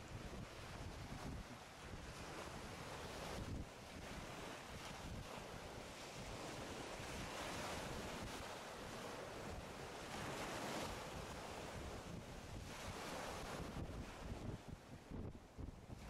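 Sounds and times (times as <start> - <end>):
choppy water lapping and splashing: 0.0 - 16.0
wind buffeting microphone: 0.0 - 16.0.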